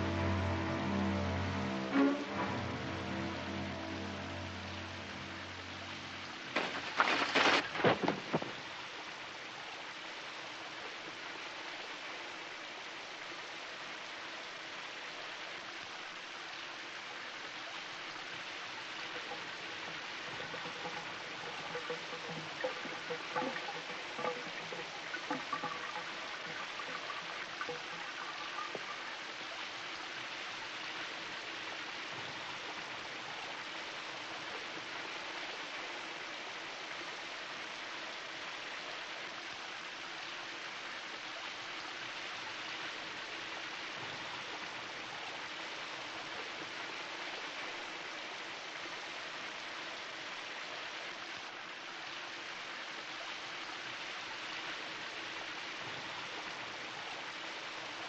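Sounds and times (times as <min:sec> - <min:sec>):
shower water spraying: 0:19.0 - 0:28.7.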